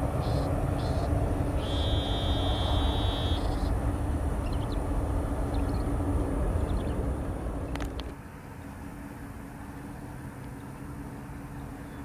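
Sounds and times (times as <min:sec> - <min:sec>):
long high buzz: 0:00.0 - 0:06.3
jet engines rumbling: 0:00.0 - 0:09.2.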